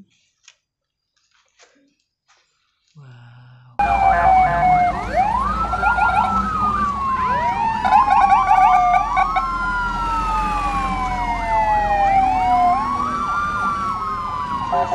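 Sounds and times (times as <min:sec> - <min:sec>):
fast warbling siren: 0:03.8 - 0:14.9
wailing emergency sirens: 0:03.8 - 0:14.9.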